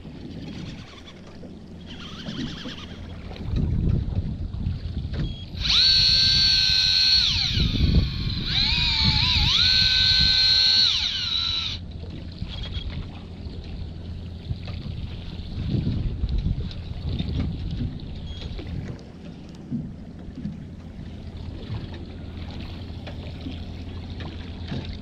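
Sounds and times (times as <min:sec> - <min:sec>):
boat noise: 0:00.0 - 0:25.0
wind: 0:00.0 - 0:25.0
electric fishing reel whining: 0:00.5 - 0:03.2, 0:05.3 - 0:11.8, 0:12.5 - 0:12.9.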